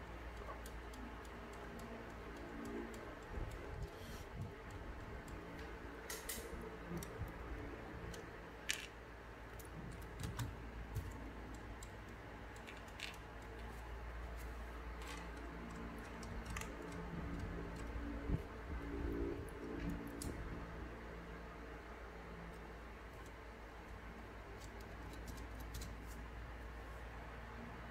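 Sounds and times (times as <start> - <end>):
plastic parts clicking and rattling: 8.1 - 13.7, 15.0 - 18.0.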